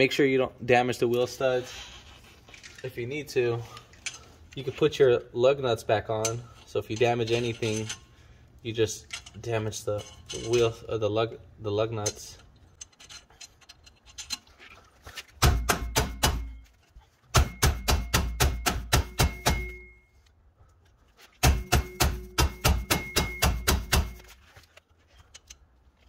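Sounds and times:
hammer striking metal brake drum: 0:15.4 - 0:16.6, 0:17.3 - 0:20.0, 0:21.4 - 0:24.2.

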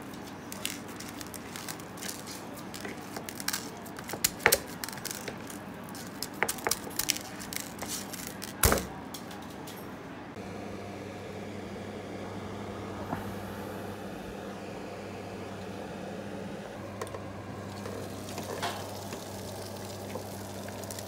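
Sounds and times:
hands rubbing raw meat: 0:00.0 - 0:08.6.

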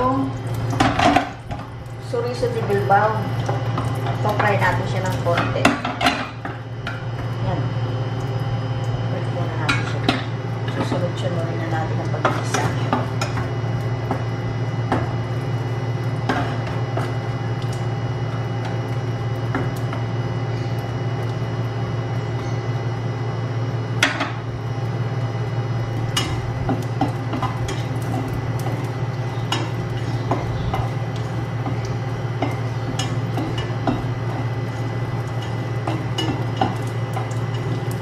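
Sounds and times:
sausage frying in oil: 0:00.0 - 0:38.0
steady low hum: 0:00.0 - 0:38.0
spatula scraping frying pan: 0:26.1 - 0:38.0.

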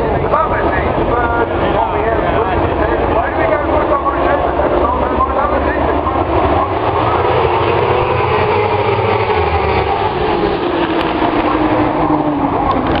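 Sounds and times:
racing motorbikes accelerating: 0:01.4 - 0:13.0.

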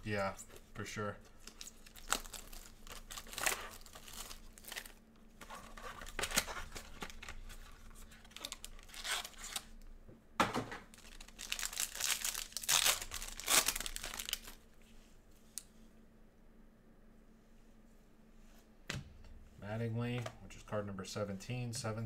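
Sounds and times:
foil pack crinkling and tearing: 0:01.3 - 0:09.8, 0:10.9 - 0:14.6
plastic shrink wrap crinkling and tearing: 0:01.3 - 0:09.8, 0:10.9 - 0:14.6.

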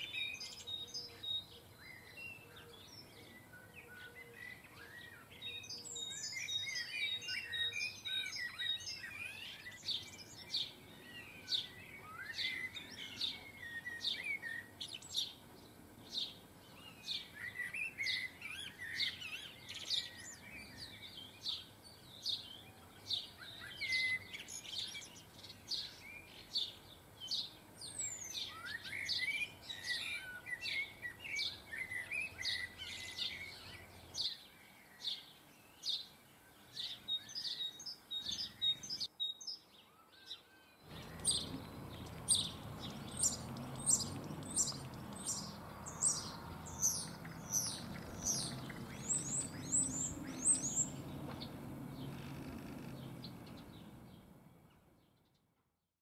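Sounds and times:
songbirds chirping: 0:00.0 - 0:55.8.

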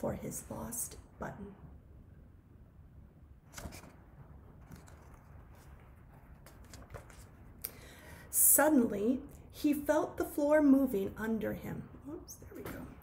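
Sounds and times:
low room hum: 0:00.0 - 0:13.0
book handling clicks and rustles: 0:03.5 - 0:07.6.

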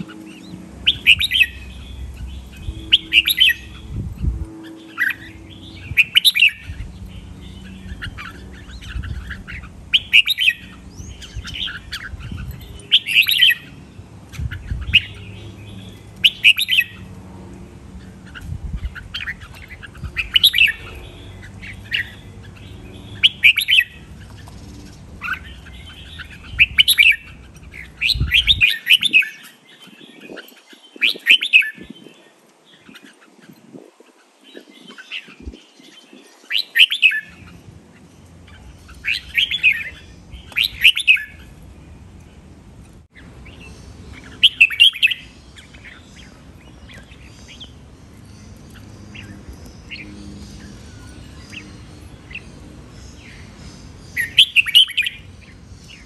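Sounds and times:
bulbul singing song phrases: 0:00.0 - 0:17.1.

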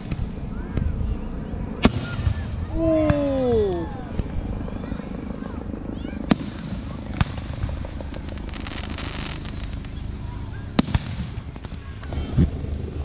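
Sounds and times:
low rumble: 0:00.0 - 0:13.0
crackling firework stars: 0:06.2 - 0:12.6
firework shells bursting: 0:06.3 - 0:10.0.

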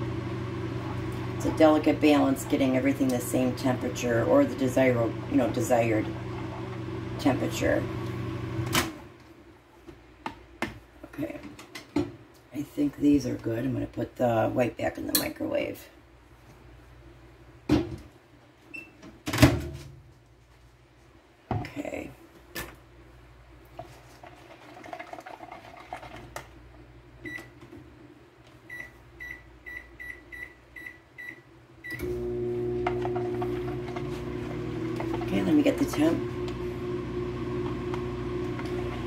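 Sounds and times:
microwave oven humming: 0:00.0 - 0:09.1, 0:28.7 - 0:39.0.

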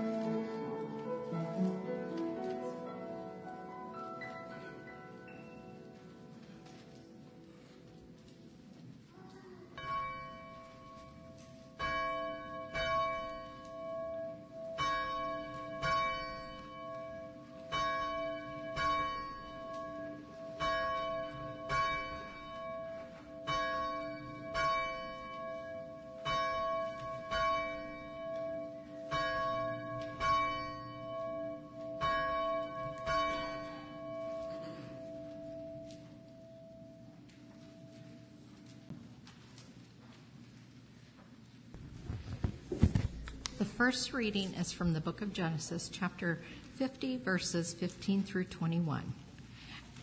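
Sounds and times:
church bell ringing: 0:09.6 - 0:38.9.

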